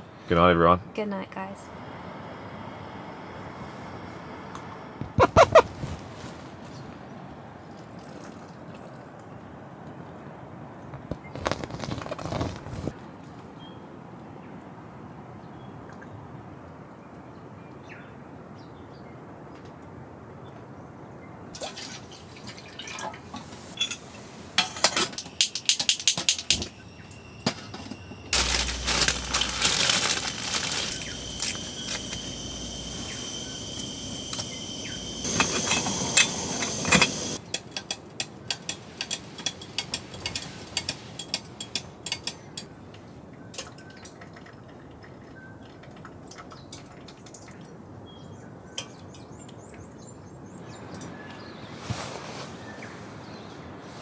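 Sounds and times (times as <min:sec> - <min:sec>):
rain ticking on tent fabric: 0:11.0 - 0:13.0, 0:28.3 - 0:33.2
faint high steady tone: 0:26.6 - 0:37.4.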